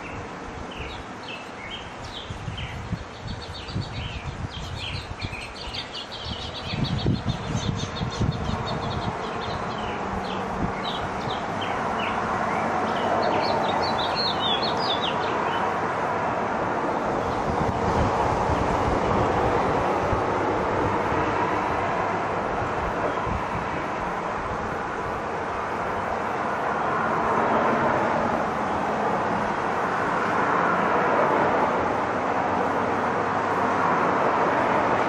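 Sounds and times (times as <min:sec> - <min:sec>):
songbirds chirping: 0:00.0 - 0:16.1
steady rushing noise: 0:00.0 - 0:35.0.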